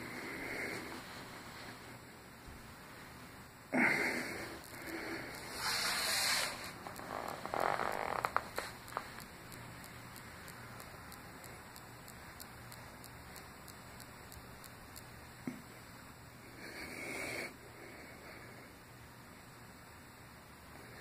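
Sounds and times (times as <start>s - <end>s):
faint steady hiss: 0.0s - 21.0s
small clicks: 4.6s - 15.2s
rustling on carpet: 5.2s - 9.3s
breathing: 16.5s - 18.8s.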